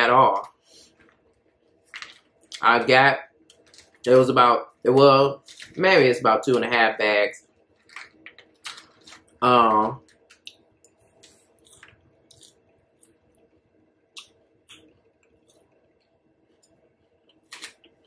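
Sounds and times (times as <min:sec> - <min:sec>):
chewing crunches: 0:07.8 - 0:09.4, 0:10.0 - 0:13.5, 0:14.1 - 0:18.0
wet mouth clicks: 0:10.3 - 0:13.2, 0:14.1 - 0:15.6.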